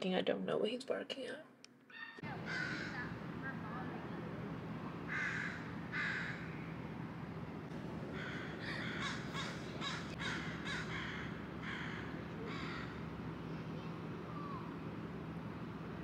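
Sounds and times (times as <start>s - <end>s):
faint low hum: 0.0s - 16.0s
crow cawing: 1.9s - 3.2s, 5.1s - 6.6s, 8.1s - 13.0s.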